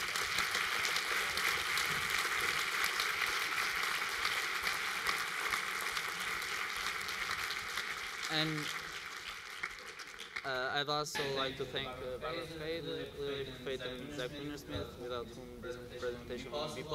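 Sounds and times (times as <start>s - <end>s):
audience applause: 0.0s - 10.8s.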